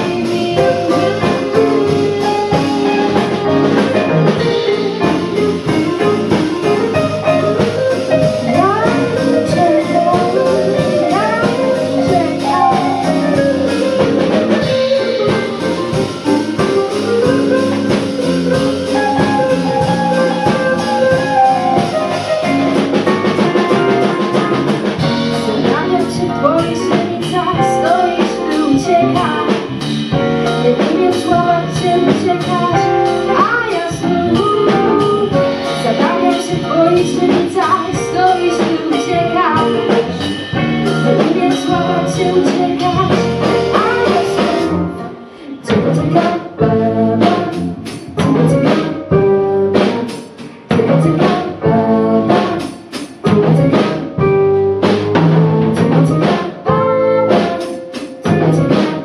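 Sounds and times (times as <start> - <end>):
woman singing into a microphone: 0.0 - 5.8, 8.0 - 13.8, 23.1 - 29.8, 30.4 - 54.0, 55.8 - 59.0
live band playing: 0.0 - 59.0.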